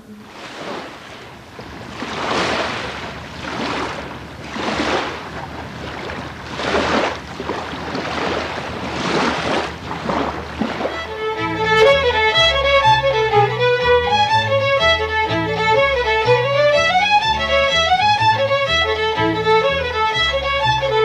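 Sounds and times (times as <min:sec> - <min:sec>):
small waves washing on shore: 0:00.0 - 0:13.6.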